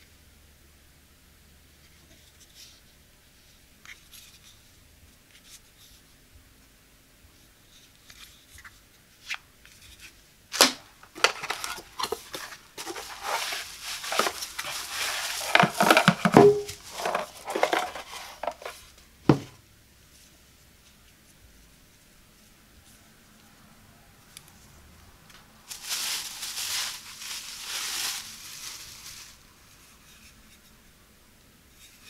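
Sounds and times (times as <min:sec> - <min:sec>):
bubble wrap crackling: 0:10.5 - 0:19.0, 0:25.7 - 0:30.0
plastic wrap crinkling: 0:10.5 - 0:19.0, 0:25.7 - 0:30.0
cardboard scraping: 0:10.6 - 0:19.5.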